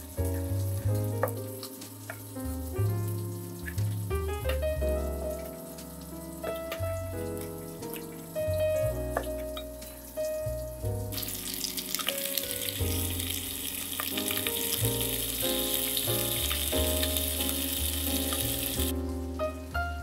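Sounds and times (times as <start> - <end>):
background music with bass: 0.0 - 20.0
meat sizzling in fat: 11.1 - 19.0.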